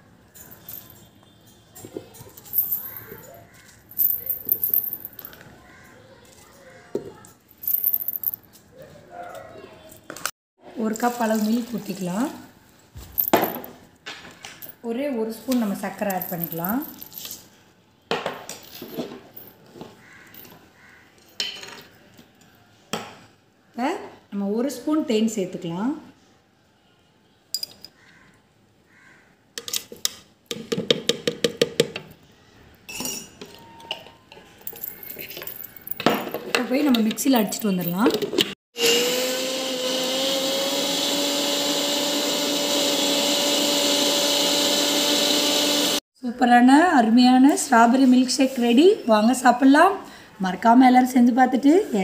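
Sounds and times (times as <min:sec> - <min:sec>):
mixer grinder motor whine: 0:38.8 - 0:46.0.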